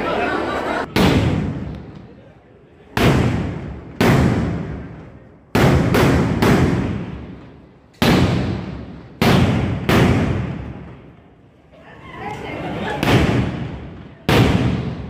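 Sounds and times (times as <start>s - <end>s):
firecracker bangs echoing: 0.9s - 2.2s, 2.9s - 11.1s, 13.0s - 15.0s.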